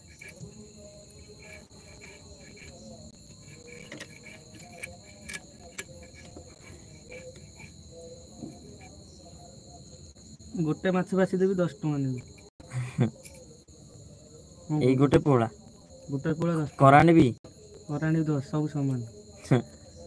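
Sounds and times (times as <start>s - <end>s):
fish scraped against blade: 0.0s - 7.8s
night insects chirring: 0.0s - 20.0s.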